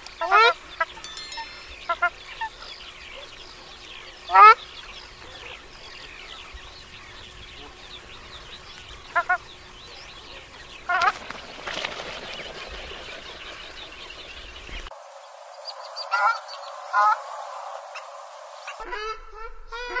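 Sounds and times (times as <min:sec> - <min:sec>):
faint birds chirping: 0:00.0 - 0:18.8
shelducks honking: 0:07.2 - 0:14.9.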